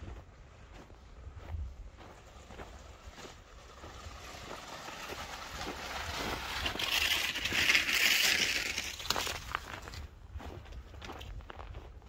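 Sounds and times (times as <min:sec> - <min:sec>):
skis scraping over snow: 0:01.5 - 0:10.1.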